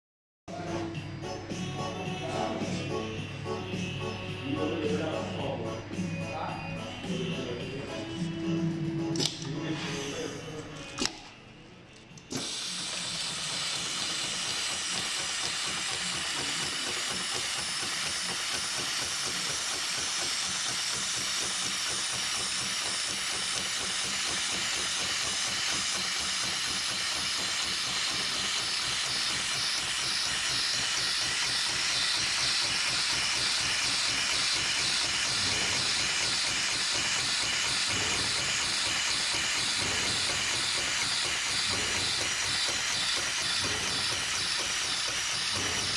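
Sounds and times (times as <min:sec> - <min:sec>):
sewing machine running: 0:12.3 - 0:45.9.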